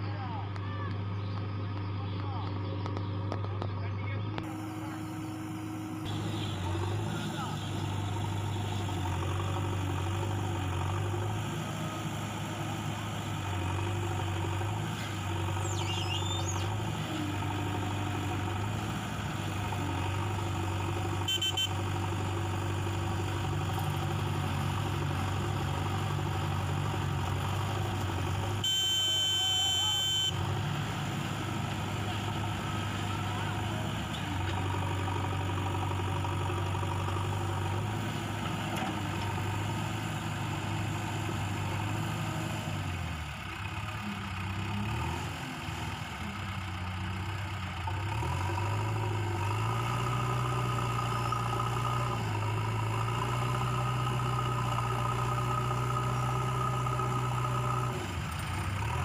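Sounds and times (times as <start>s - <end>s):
diesel engine running: 0.0s - 59.0s.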